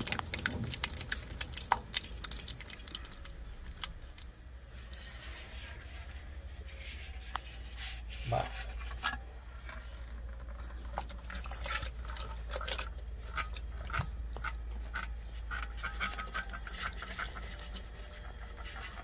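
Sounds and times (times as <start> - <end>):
wet splats and plops: 0.0 - 4.4, 10.8 - 15.1
low steady hum: 0.0 - 19.0.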